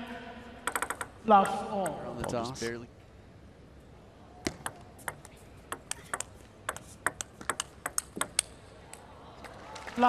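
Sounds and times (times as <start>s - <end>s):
table tennis ball clicking: 0.7s - 2.4s, 4.5s - 8.6s.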